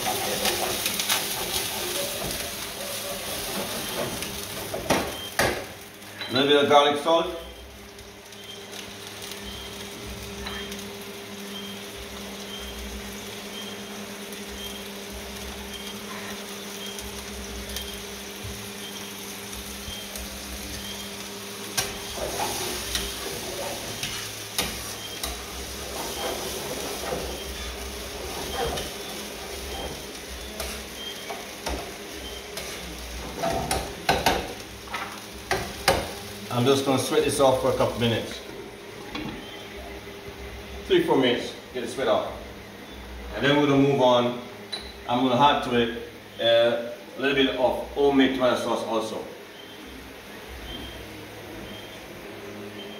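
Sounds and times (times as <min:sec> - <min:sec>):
spoon stirring and scraping pan: 0:00.0 - 0:04.9, 0:21.8 - 0:36.2
vegetables sizzling in a frying pan: 0:00.0 - 0:52.9.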